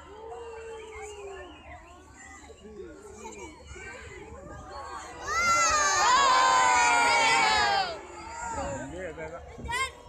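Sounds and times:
crowd cheering and whooping: 5.3 - 8.0.

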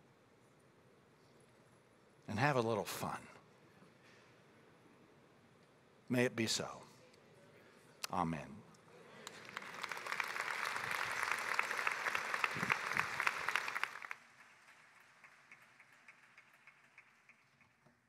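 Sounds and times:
congregation applauding: 9.1 - 17.8.

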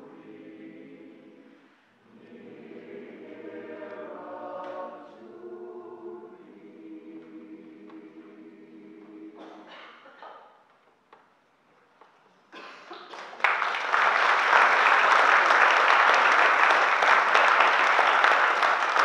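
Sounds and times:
audience applause: 13.0 - 19.0.

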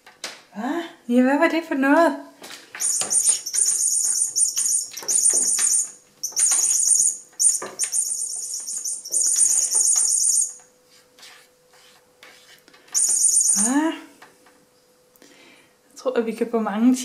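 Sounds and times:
electronic toy bird chirping: 2.8 - 10.6, 13.0 - 13.8.

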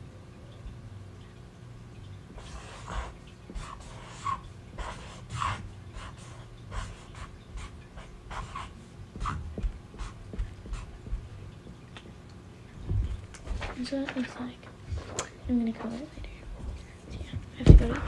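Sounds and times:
marker scratching on paper: 2.4 - 11.2, 14.9 - 15.2
hand knocking on paper: 8.3 - 11.3, 14.9 - 18.0.

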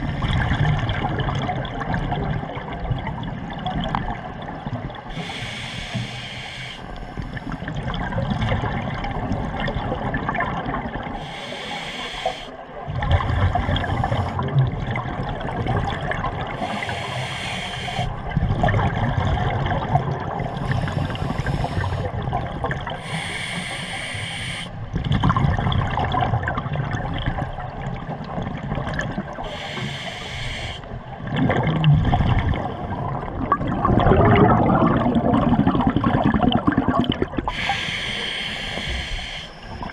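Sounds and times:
regulator inhale hiss: 5.1 - 7.6, 11.2 - 12.6, 13.7 - 14.4, 16.6 - 18.2, 20.4 - 22.2, 23.0 - 24.8, 29.4 - 31.0, 37.5 - 39.9
bubbling exhales: 31.2 - 39.9.

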